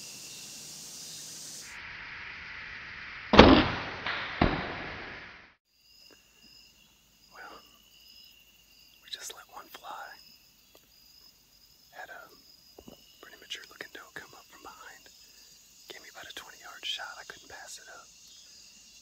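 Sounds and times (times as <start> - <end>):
bowstring crack: 3.3 - 5.4
arrow smack: 3.3 - 5.6.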